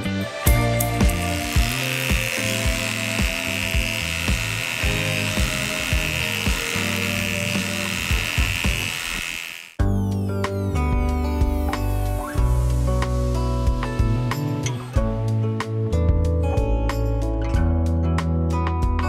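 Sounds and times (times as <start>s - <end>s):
background music with a beat: 0.0s - 6.8s, 9.8s - 19.0s
electric clipper buzzing: 0.5s - 9.8s.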